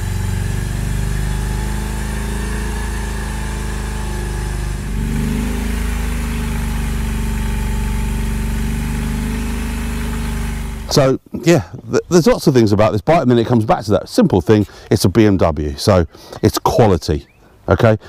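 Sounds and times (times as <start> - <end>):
motorcycle engine running: 0.0 - 11.1.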